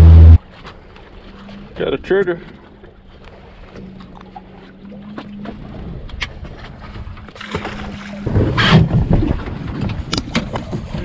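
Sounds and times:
steady low hum: 0.0 - 0.5
water: 0.0 - 11.0
wind: 0.0 - 11.0
wind buffeting microphone: 8.1 - 11.0.

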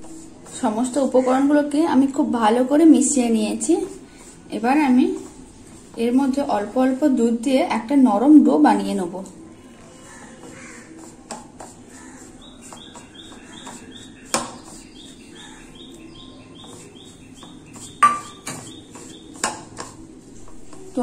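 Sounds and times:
hands mixing dough in bowl: 0.0 - 21.0
bird chirping: 11.9 - 19.5.

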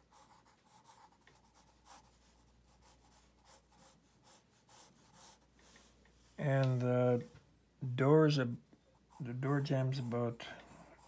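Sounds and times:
pencil scratching on paper: 0.0 - 5.9, 9.0 - 11.0.

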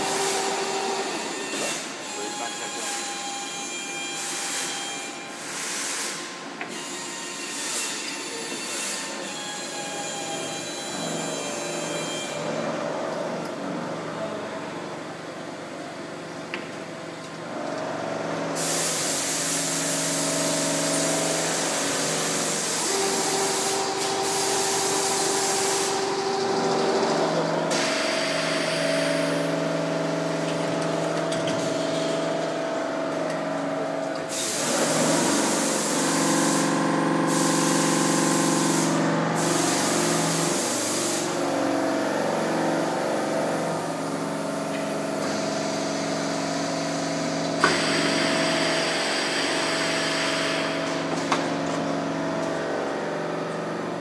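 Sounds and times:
loud machine hiss: 0.0 - 3.4, 4.0 - 10.8, 18.6 - 30.2, 34.2 - 41.7, 45.0 - 51.1
steady machine tones: 20.1 - 34.0.

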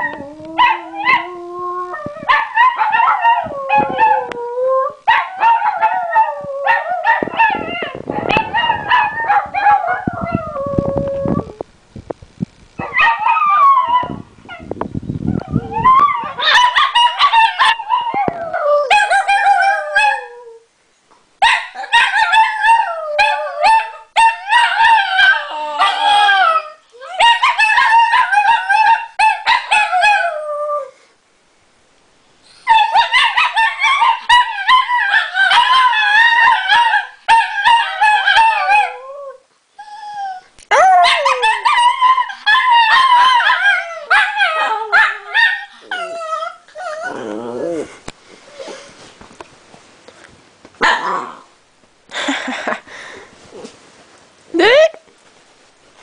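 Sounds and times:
dogs howling: 0.0 - 11.5, 22.0 - 30.9, 32.7 - 47.9.

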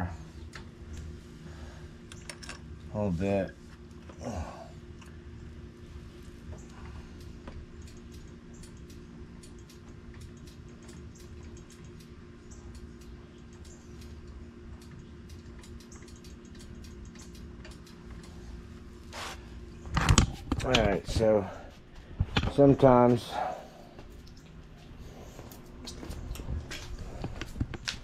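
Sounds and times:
electric fan hum: 0.0 - 28.0
wrench ticking and clicking: 7.2 - 18.3.

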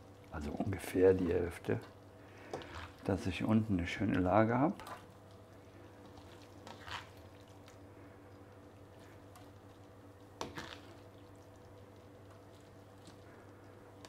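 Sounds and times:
steady low hum: 0.0 - 14.0
cabbage squishing and scraping: 2.6 - 3.5, 6.0 - 7.8, 10.4 - 11.1.

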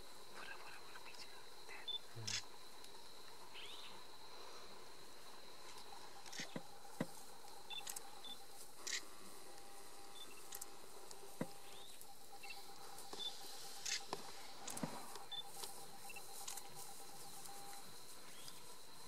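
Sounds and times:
sharp clicks: 10.2 - 11.2.

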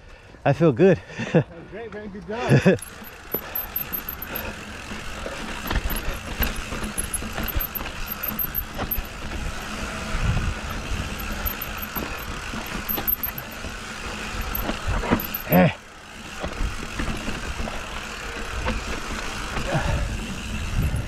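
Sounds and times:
bike knocks and rattles: 2.5 - 21.0
bike tyres rolling on dirt: 2.6 - 21.0
wind rush on microphone: 20.0 - 21.0.

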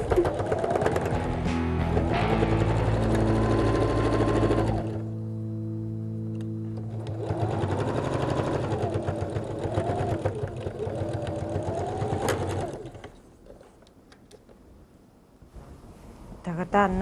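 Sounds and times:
sewing machine stitching: 0.0 - 1.3, 1.9 - 5.0, 6.9 - 13.8.

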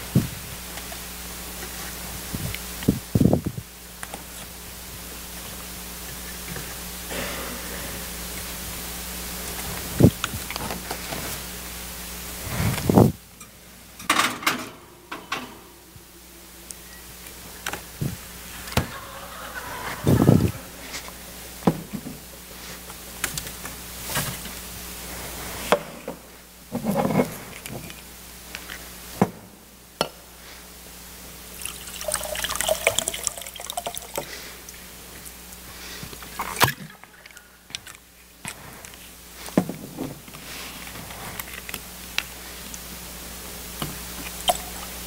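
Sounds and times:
liquid pouring into glass: 31.6 - 34.2.

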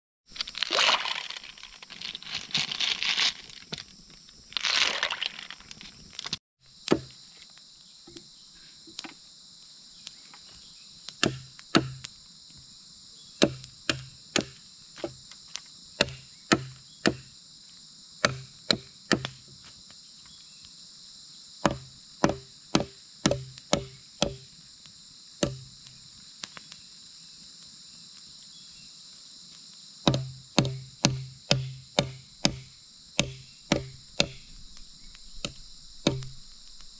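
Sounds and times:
rustling: 0.3 - 6.4
forest insects buzzing: 0.3 - 36.9
machete chopping bamboo: 6.8 - 7.2, 11.2 - 12.1, 13.4 - 15.2, 16.0 - 17.3, 18.2 - 19.4, 21.6 - 24.5, 25.4 - 25.8, 30.1 - 34.6, 35.4 - 36.5.

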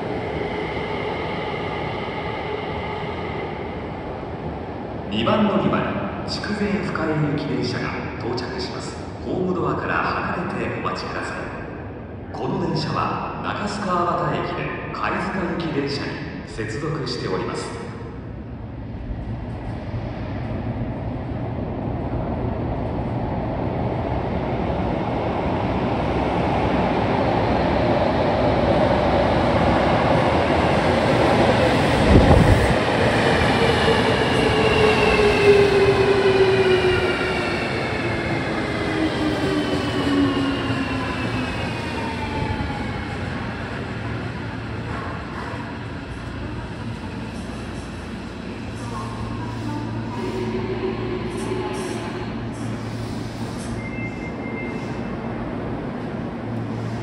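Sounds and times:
train rumble: 18.3 - 57.0.

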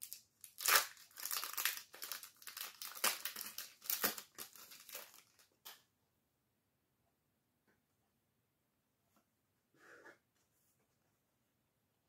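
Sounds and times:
foil wrapper crinkling and tearing: 0.0 - 5.5.

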